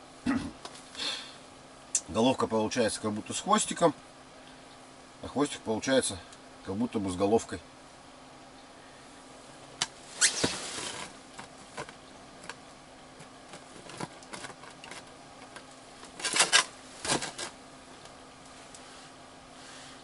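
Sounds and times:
faint steady hum: 0:00.0 - 0:20.0
plastic parts clicking and tapping: 0:13.2 - 0:17.5.

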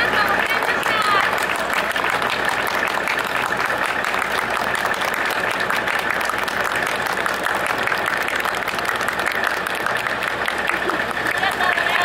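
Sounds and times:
people clapping: 0:00.0 - 0:12.0.

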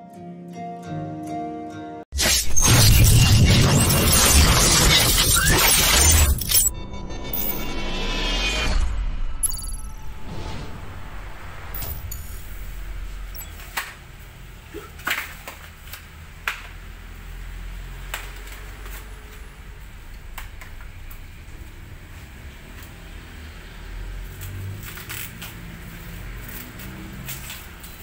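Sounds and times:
low rumble: 0:06.7 - 0:13.6.

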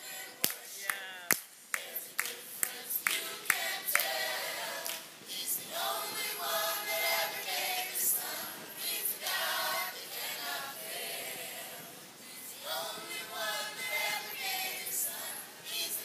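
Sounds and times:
group singing a hymn in harmony: 0:00.0 - 0:00.8, 0:01.7 - 0:16.0
hand clap: 0:00.4 - 0:04.2, 0:04.8 - 0:05.0.

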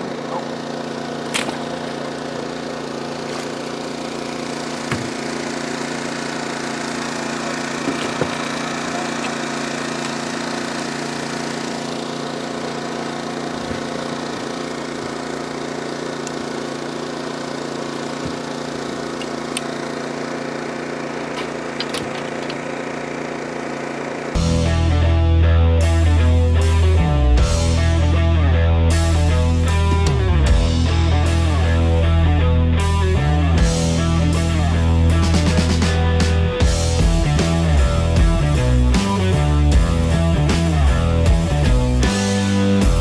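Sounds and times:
small engine humming: 0:00.0 - 0:43.0
sharp knocks: 0:04.9 - 0:05.2
music: 0:24.4 - 0:43.0.

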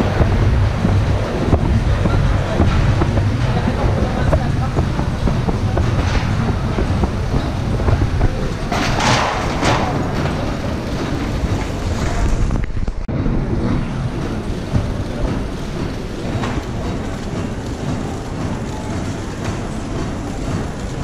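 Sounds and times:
production line machinery: 0:00.0 - 0:21.0.

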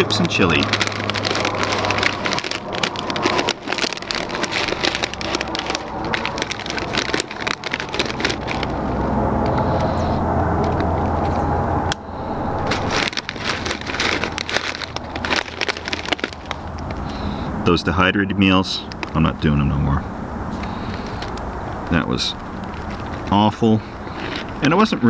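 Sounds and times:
plastic chip bag crinkling: 0:00.0 - 0:10.0, 0:12.6 - 0:17.5, 0:18.9 - 0:19.2, 0:20.6 - 0:25.0
steady low rumble: 0:00.0 - 0:25.0.

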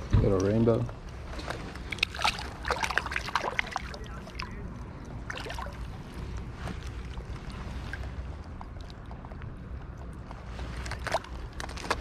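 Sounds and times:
river flowing: 0:01.2 - 0:09.8
water splashing: 0:01.2 - 0:12.0.

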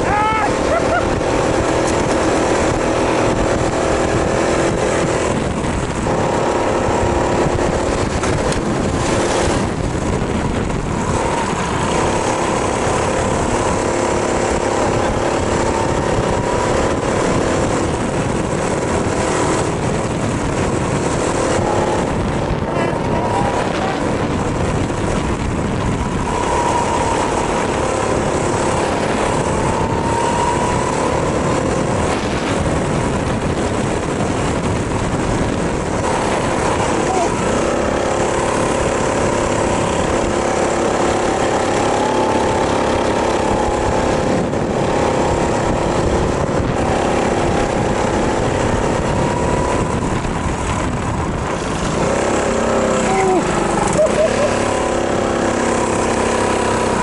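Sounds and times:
go-kart engine revving: 0:00.0 - 0:57.0
steady rush of noise: 0:00.0 - 0:57.0.

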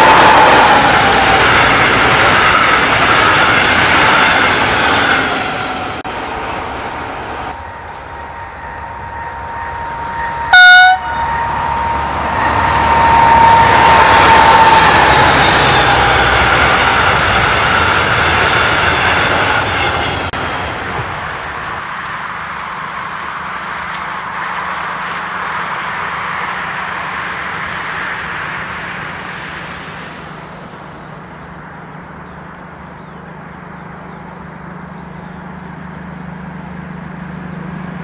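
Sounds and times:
locomotive whine: 0:00.0 - 0:38.0
train rumbling past: 0:00.0 - 0:38.0
loud train horn blast: 0:07.5 - 0:16.7.

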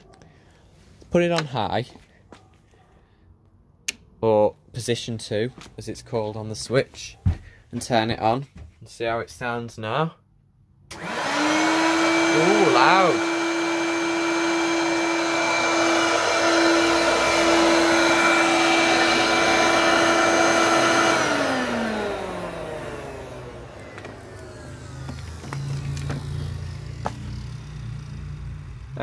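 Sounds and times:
motor spinning down: 0:10.9 - 0:29.0
vacuum cleaner motor whine: 0:10.9 - 0:29.0.

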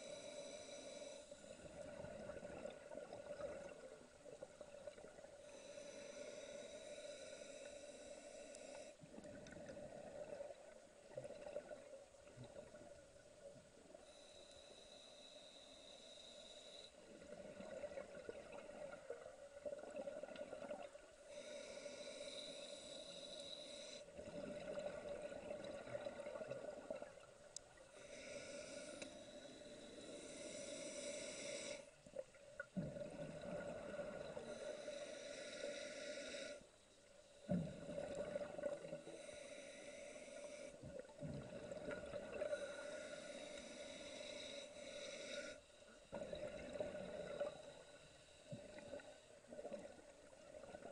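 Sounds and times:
hissing breath through regulator: 0:00.0 - 0:02.0, 0:05.4 - 0:09.1, 0:13.9 - 0:17.6, 0:21.2 - 0:25.5, 0:27.8 - 0:32.0, 0:33.9 - 0:37.6, 0:38.5 - 0:49.4
bubbling and gurgling: 0:32.6 - 0:34.4, 0:37.6 - 0:39.0, 0:40.9 - 0:42.6, 0:46.1 - 0:47.7.

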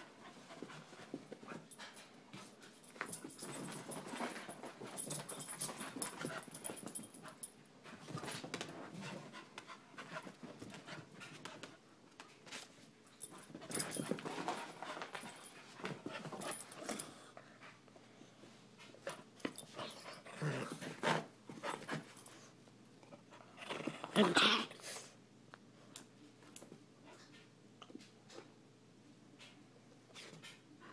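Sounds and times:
dogs scuffling: 0:00.2 - 0:17.0.

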